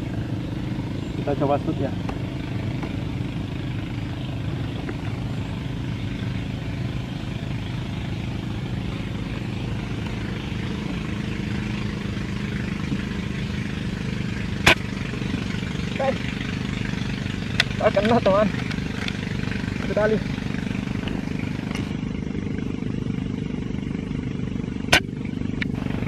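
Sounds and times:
low engine-like hum: 0.0s - 26.0s.

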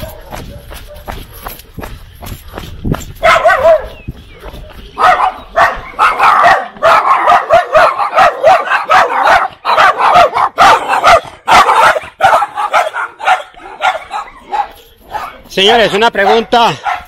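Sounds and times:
small dogs yapping: 3.2s - 4.2s, 4.9s - 15.5s.

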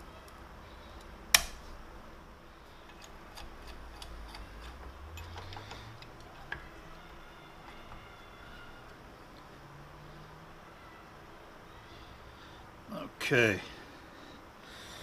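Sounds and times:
metal tools clicking and tapping: 2.8s - 6.7s.

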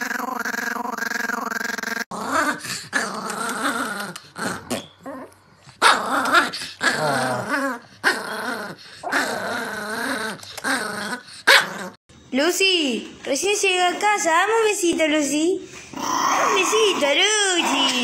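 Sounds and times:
small dog growling and snarling: 0.0s - 12.0s, 15.9s - 18.0s.

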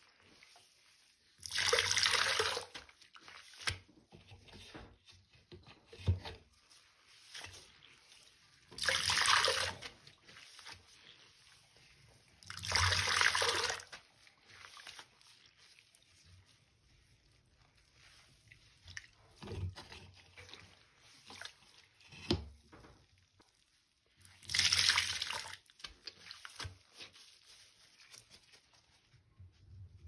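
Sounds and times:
wet sponge squelching: 0.0s - 4.2s, 5.0s - 30.0s
water splashing into sink: 1.4s - 2.8s, 8.7s - 10.0s, 24.4s - 25.9s.

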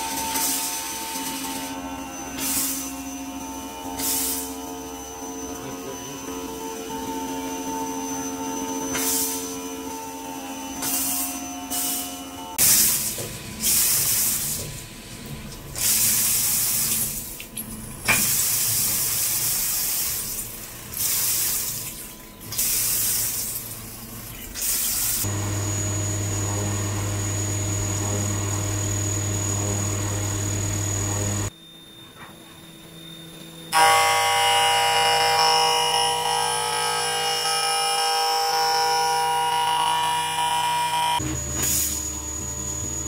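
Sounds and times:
coolant spray hissing and splashing: 12.6s - 17.6s, 18.2s - 25.3s
machine hum: 25.2s - 43.0s
ringing cutter tone: 27.2s - 41.2s.

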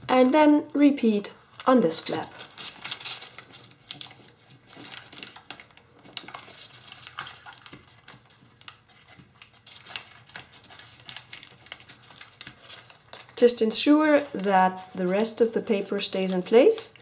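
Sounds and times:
foil crinkling: 1.4s - 16.7s
small clicks of foil folding: 1.6s - 13.4s.

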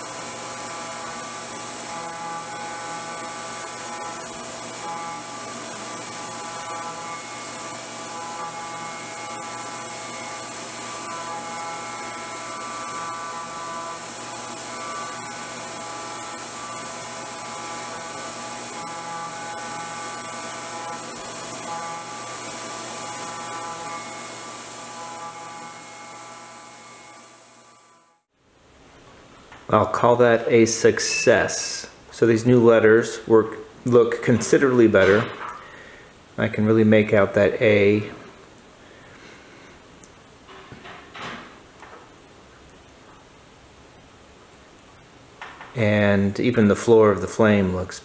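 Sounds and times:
milling machine spindle whining: 0.0s - 28.3s.

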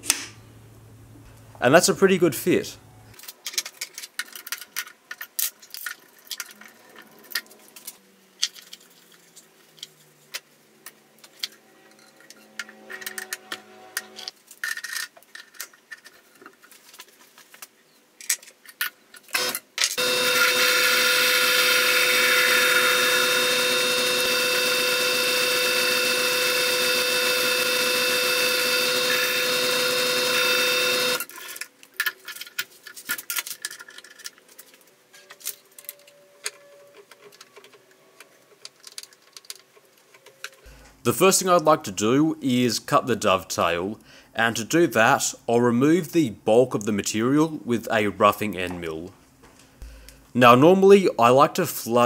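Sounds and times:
metal lathe whining: 19.4s - 31.3s.

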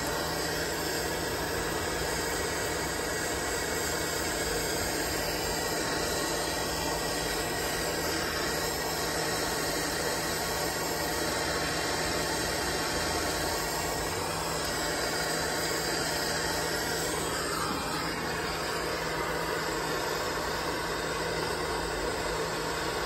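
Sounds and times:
propane torch hissing: 0.0s - 23.0s.

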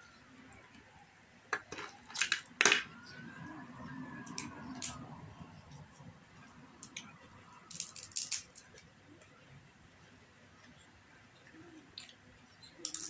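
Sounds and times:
faint rising and falling tone: 2.8s - 7.7s.

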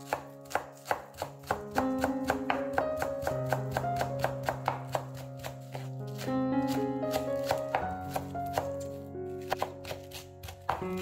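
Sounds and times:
background music: 0.0s - 11.0s
knife chopping on wooden board: 0.0s - 11.0s.

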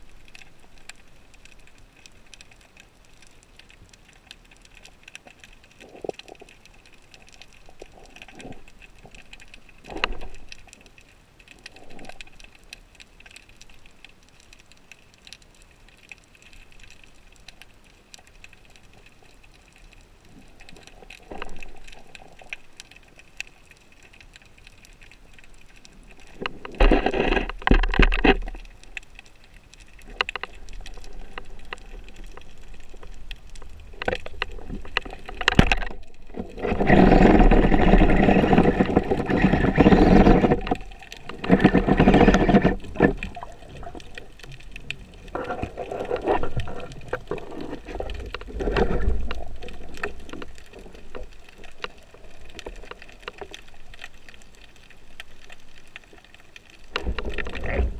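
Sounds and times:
faint clicks: 0.0s - 57.9s
water rushing and gurgling: 16.4s - 57.9s.

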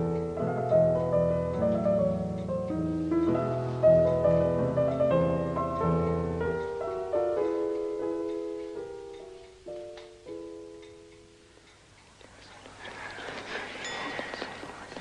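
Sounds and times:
slow solo piano piece: 0.0s - 11.2s.

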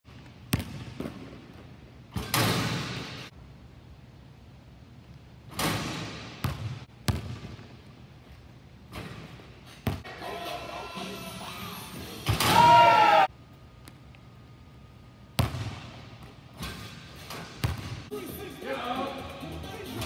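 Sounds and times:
basketball bouncing on wooden floor: 0.5s - 1.5s, 5.8s - 7.7s, 17.6s - 18.1s
ball crashing against rim and backboard: 2.1s - 3.3s, 5.5s - 7.6s, 12.2s - 12.8s, 15.4s - 18.1s.

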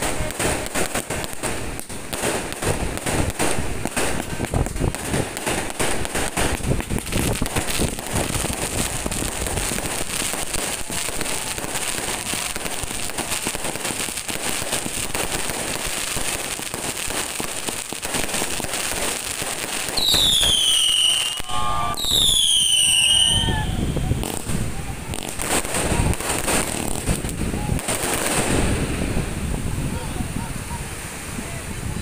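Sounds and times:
fireworks crackling and banging: 0.0s - 32.0s
high falling whistle: 20.0s - 24.1s.

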